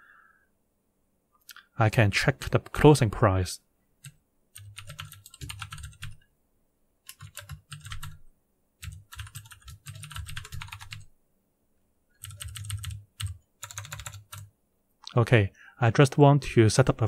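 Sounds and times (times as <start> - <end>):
typing on computer keyboard: 4.0 - 6.2, 7.1 - 8.2, 8.8 - 11.1, 12.2 - 14.5.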